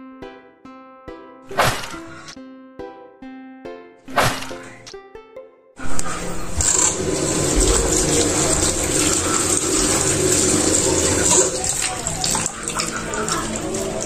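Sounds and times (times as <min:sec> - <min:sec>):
water splashing: 0:01.5 - 0:02.3, 0:05.8 - 0:14.0
tap running into bowl: 0:05.9 - 0:14.0.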